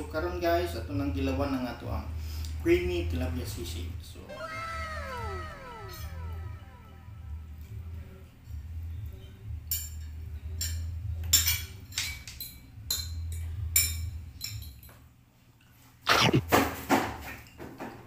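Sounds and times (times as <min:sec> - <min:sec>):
low steady hum: 0:04.3 - 0:09.0
cutlery clinking on a plate: 0:09.7 - 0:15.1
short loud vocal sound: 0:16.1 - 0:16.6.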